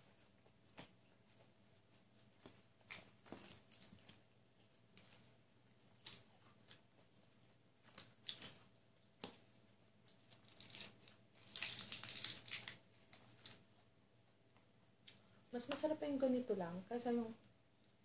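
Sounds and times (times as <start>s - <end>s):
crunchy chewing and crackling: 0.0s - 13.9s.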